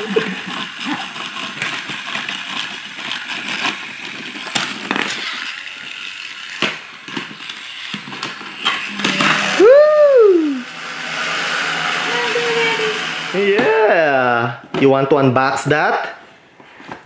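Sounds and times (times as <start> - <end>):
toy car motor whirring: 0.0 - 14.2
person's voice rising in pitch: 8.9 - 10.7, 12.0 - 14.5.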